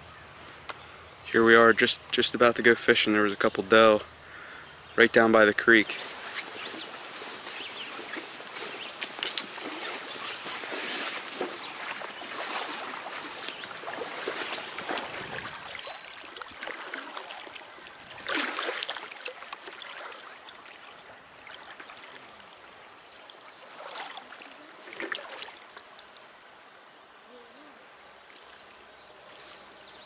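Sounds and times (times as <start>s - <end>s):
footsteps swishing through tall grass: 5.8s - 16.0s
water sloshing around wading legs: 5.9s - 22.7s, 23.6s - 26.2s.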